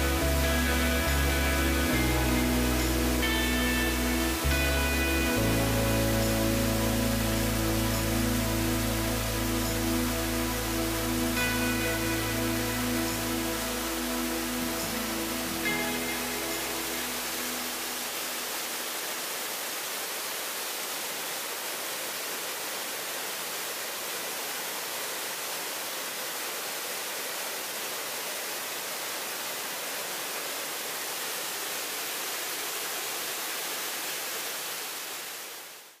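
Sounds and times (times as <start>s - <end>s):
background music: 0.0s - 18.5s
waterfall rushing: 0.0s - 36.0s.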